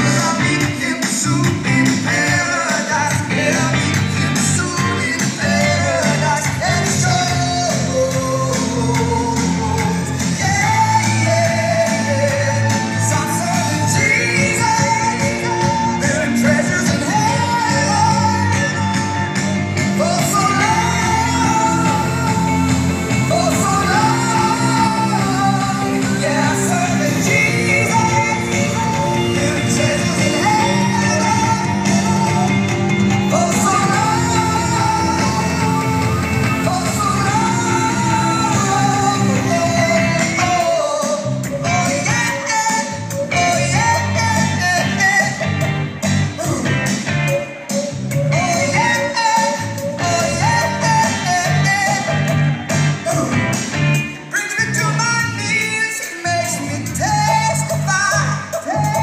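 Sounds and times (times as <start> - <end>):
pop band with steady beat: 0.0 - 59.0
person singing long notes: 4.6 - 45.5.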